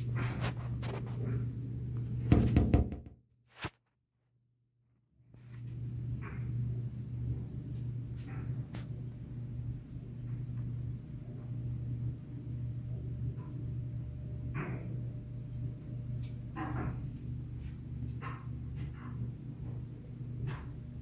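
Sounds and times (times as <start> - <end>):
steady low hum: 5.4 - 21.0.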